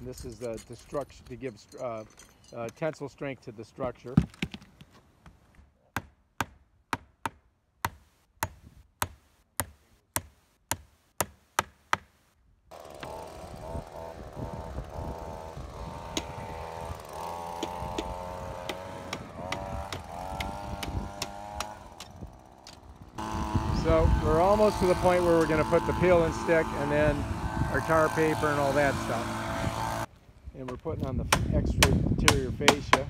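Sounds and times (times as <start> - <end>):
hammer driving nails into wood: 5.9 - 12.2, 17.6 - 22.8.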